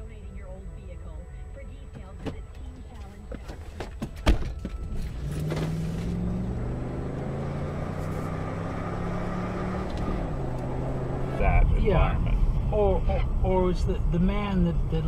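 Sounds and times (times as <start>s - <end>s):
road noise inside car: 0.0s - 15.0s
car engine accelerating: 4.6s - 15.0s.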